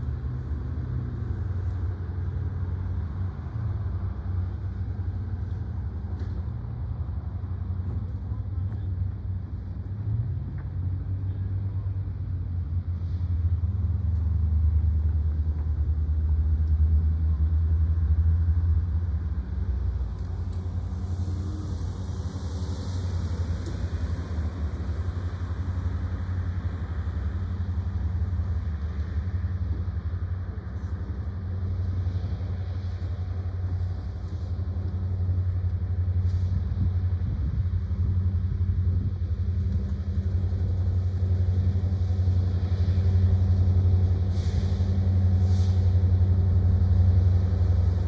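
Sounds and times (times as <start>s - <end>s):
diesel locomotive engine rumble: 0.0s - 48.0s
brief hiss: 44.2s - 46.3s.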